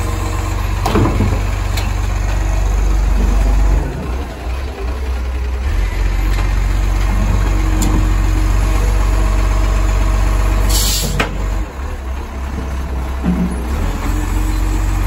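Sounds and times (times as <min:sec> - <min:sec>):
garbage truck engine and hydraulics: 0:00.0 - 0:15.0
air hiss: 0:10.7 - 0:11.2.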